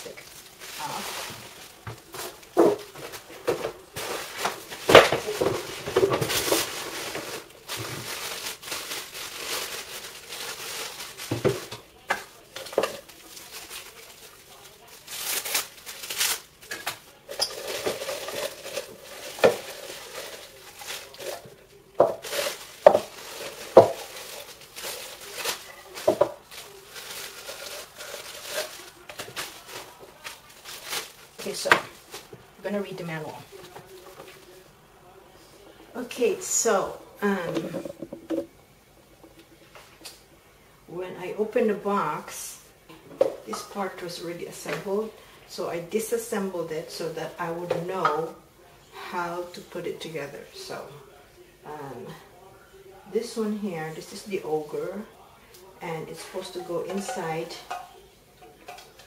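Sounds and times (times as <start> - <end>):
plastic bags crinkling: 0.0 - 34.6, 36.0 - 40.3.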